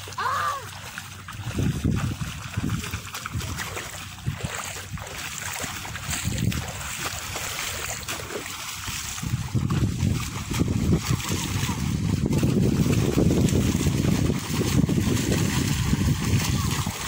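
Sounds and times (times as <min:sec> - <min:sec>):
wind buffeting microphone: 0:01.2 - 0:17.0.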